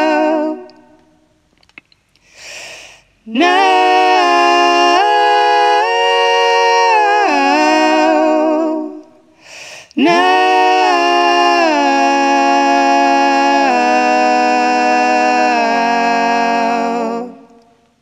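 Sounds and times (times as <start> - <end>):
woman singing a cappella: 0.0 - 1.1, 3.3 - 9.2, 10.0 - 17.7
short breath: 2.2 - 3.2, 9.3 - 10.0.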